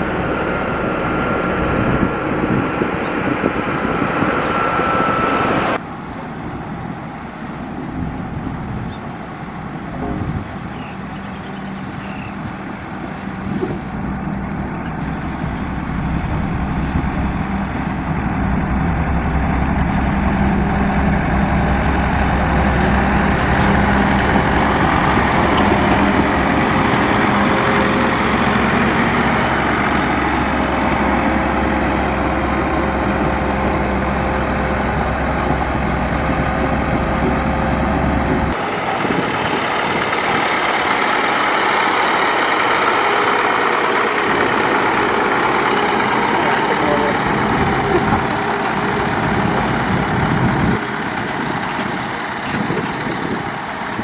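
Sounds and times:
heavy diesel engine running: 0.0s - 54.0s
higher engine sound: 0.0s - 54.0s.

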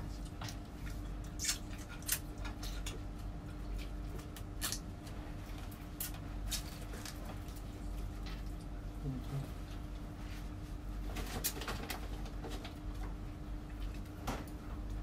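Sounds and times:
people eating and chewing: 0.0s - 9.9s
low steady hum: 0.0s - 15.0s.

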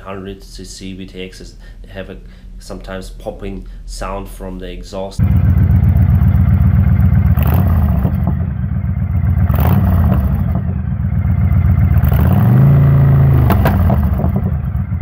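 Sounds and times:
motorcycle engine idling: 5.2s - 15.0s
engine cracks: 11.8s - 14.9s.

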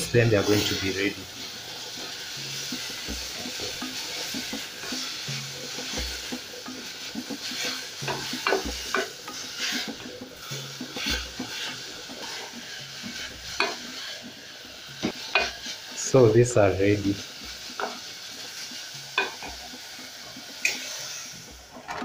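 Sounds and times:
wooden spoon scraping a pot: 0.0s - 15.9s
vegetables sizzling in oil: 0.0s - 22.0s.

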